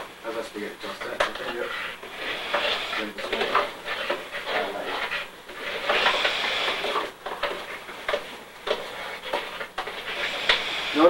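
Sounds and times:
rustling and scraping in flour: 0.8s - 11.0s.

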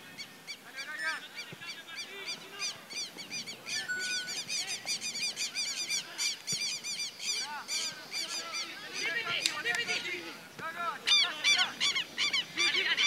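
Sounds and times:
flock of birds calling: 0.0s - 13.0s.

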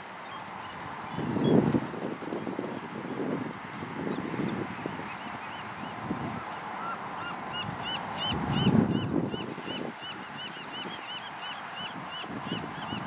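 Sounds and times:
gulls calling: 4.7s - 13.0s.

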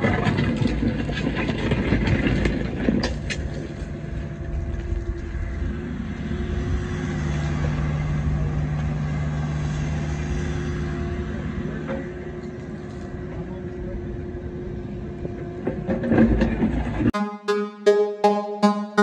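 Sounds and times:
bucket scraping rocky soil: 0.0s - 4.1s
excavator diesel engine running: 0.0s - 17.1s.

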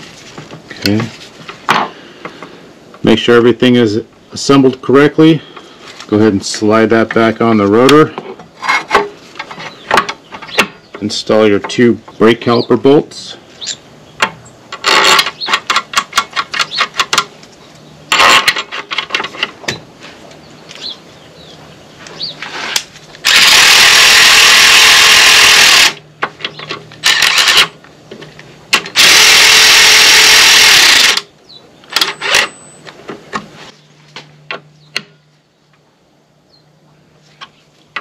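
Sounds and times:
power tool driving bolts: 14.7s - 17.3s, 18.1s - 19.6s, 23.2s - 26.0s, 26.6s - 27.8s, 28.7s - 31.3s, 31.9s - 32.6s.

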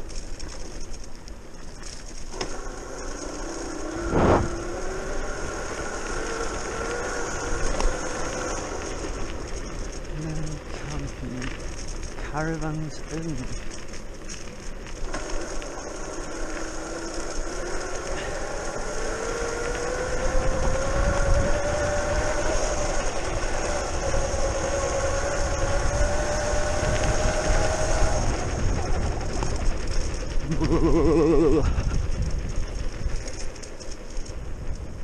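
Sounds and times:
electric scooter motor whining: 0.0s - 35.0s
low rumble: 3.9s - 6.7s, 25.8s - 35.0s.

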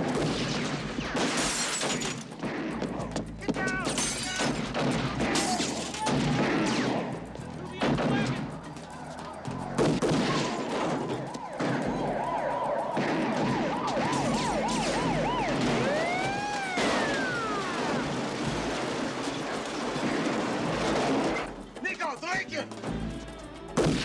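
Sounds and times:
film scene noise: 2.2s - 24.0s
siren yelping and wailing: 10.1s - 18.3s.

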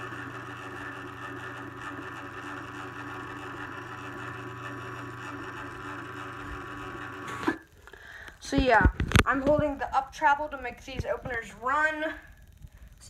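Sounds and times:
garage door opener motor humming: 0.0s - 7.8s.

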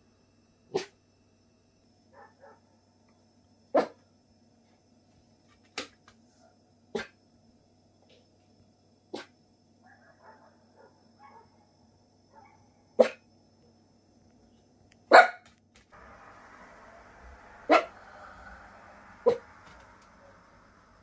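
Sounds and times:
dog barking: 0.7s - 1.0s, 2.1s - 2.8s, 3.7s - 4.0s, 6.4s - 7.2s, 9.1s - 11.6s, 12.3s - 13.2s, 15.1s - 15.5s, 17.4s - 18.5s, 19.2s - 19.6s.

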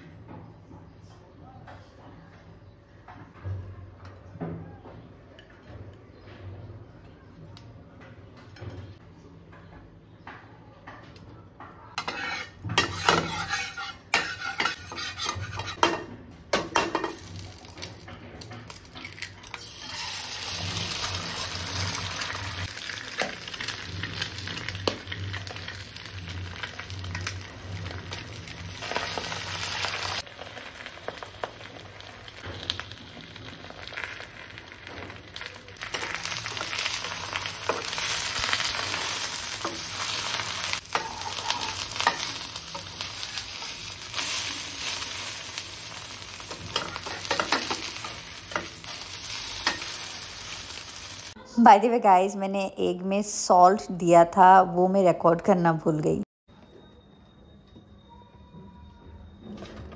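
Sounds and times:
eggs sizzling in a pan: 12.0s - 15.9s, 16.6s - 51.4s
utensils knocking on bowl and pan: 12.0s - 19.7s, 35.8s - 45.3s, 46.2s - 50.5s.

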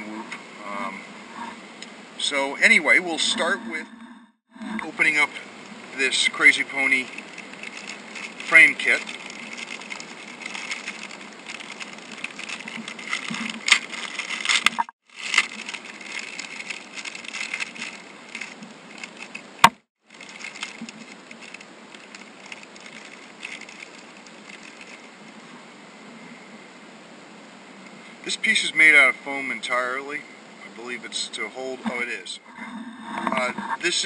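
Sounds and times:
plastic bag crinkling: 6.0s - 25.4s.

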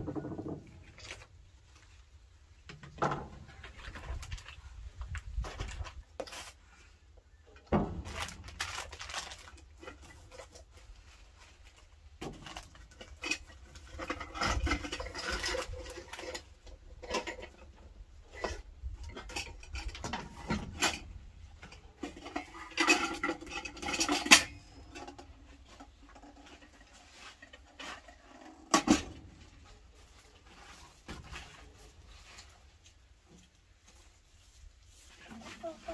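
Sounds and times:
metal pots and utensils clattering: 12.2s - 29.5s.

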